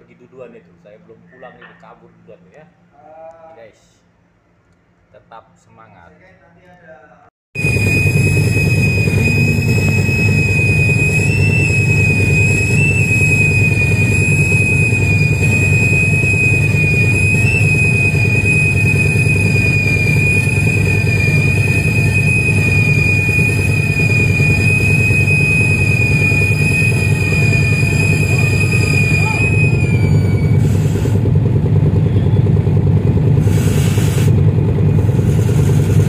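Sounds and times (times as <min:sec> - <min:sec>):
diesel machinery low rumble: 0:07.6 - 0:36.0
high steady whine: 0:07.6 - 0:36.0.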